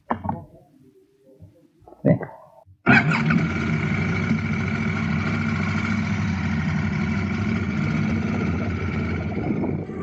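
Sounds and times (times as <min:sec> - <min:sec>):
motorcycle engine idling: 0:02.9 - 0:10.0.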